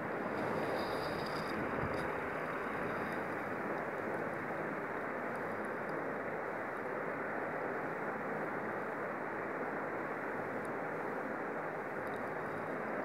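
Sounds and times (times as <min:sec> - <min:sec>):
steady background hiss: 0:00.0 - 0:13.0
faint ticks: 0:12.0 - 0:12.7.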